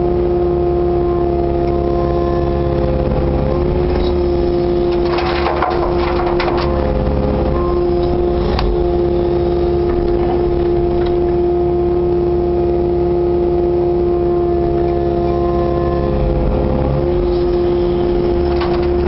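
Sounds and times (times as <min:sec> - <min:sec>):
excavator engine and hydraulics whining: 0:00.0 - 0:19.0
bucket digging soil: 0:04.9 - 0:06.9.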